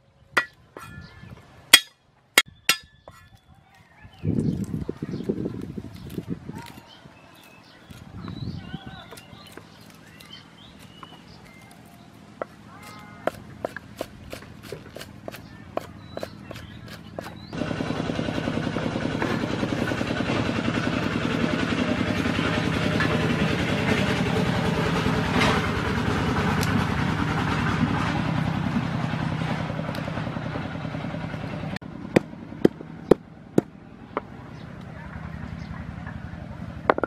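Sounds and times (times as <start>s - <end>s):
vehicle engine running: 7.5s - 37.0s.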